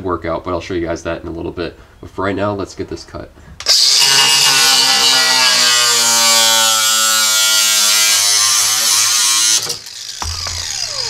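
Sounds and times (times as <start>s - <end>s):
angle grinder cutting sheet steel: 3.6s - 11.0s.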